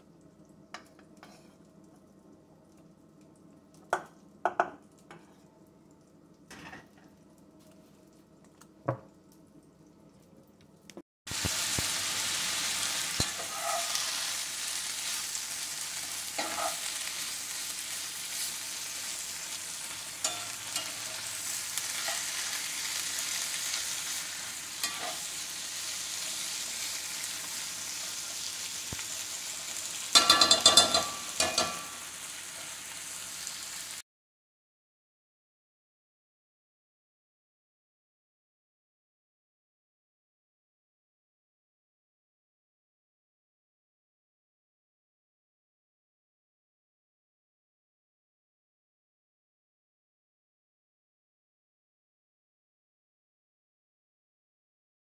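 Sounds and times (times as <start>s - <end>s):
vegetables sizzling in skillet: 0.6s - 1.7s, 11.3s - 34.0s
metal spatula scraping skillet: 1.2s - 1.6s, 12.6s - 15.2s, 16.0s - 17.3s, 19.9s - 26.4s, 30.0s - 32.8s.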